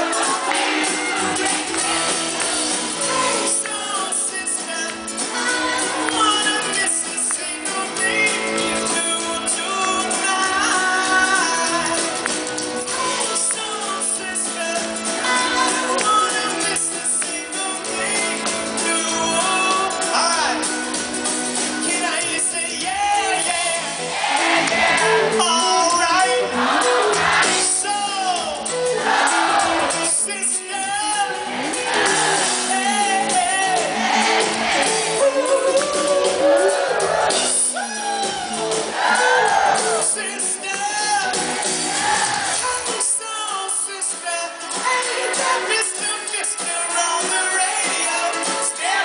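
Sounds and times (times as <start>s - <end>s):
live pop-rock band playing: 0.0s - 49.0s
man singing into microphone: 3.1s - 20.6s, 21.8s - 23.9s, 25.3s - 26.6s, 30.0s - 34.0s, 39.8s - 41.5s, 42.5s - 49.0s.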